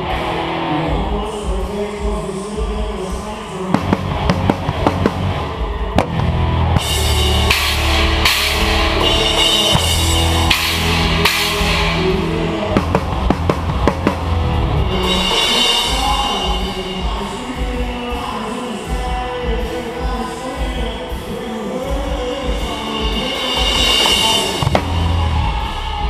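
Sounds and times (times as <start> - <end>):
rock band playing: 0.0 - 26.0
drum kit played hard: 3.7 - 26.0
crash cymbals: 6.8 - 12.6.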